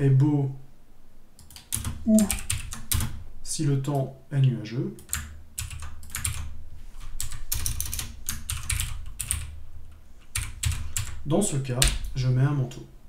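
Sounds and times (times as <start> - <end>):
typing on computer keyboard: 1.4 - 3.2, 5.0 - 6.5, 7.1 - 9.6, 10.3 - 11.2.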